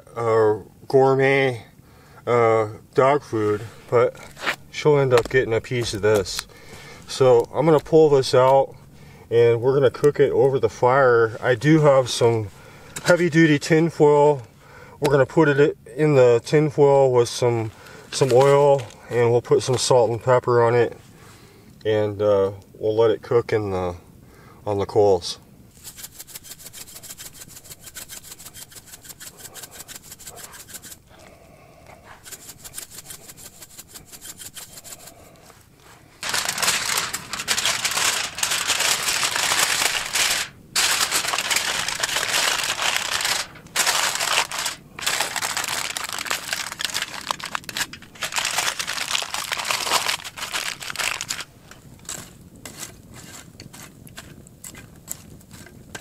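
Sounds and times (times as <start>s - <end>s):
fire crackling: 1.7s - 20.2s, 25.2s - 56.0s
aluminium foil crinkling: 3.2s - 9.1s, 9.7s - 14.5s, 17.2s - 20.0s, 25.7s - 31.3s, 32.0s - 56.0s.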